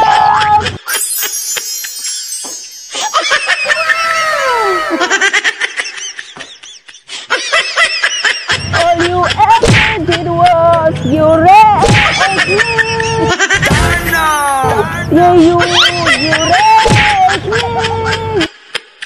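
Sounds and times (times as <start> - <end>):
people laughing and giggling: 0.0 - 14.1, 15.2 - 19.0.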